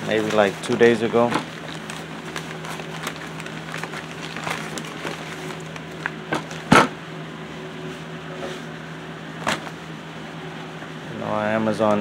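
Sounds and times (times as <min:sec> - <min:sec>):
paper envelope rustling: 0:00.0 - 0:06.7
steady low hum: 0:00.0 - 0:12.0.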